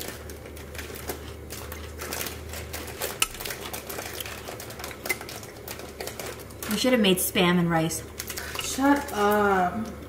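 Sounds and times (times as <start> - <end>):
chewing crunchy food: 0.0 - 6.8.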